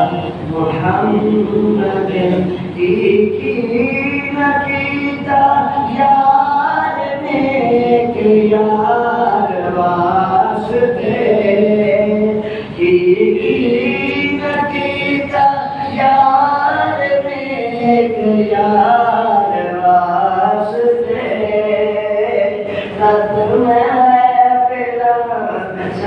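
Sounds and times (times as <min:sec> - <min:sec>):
man singing a devotional chant: 0:00.0 - 0:26.0.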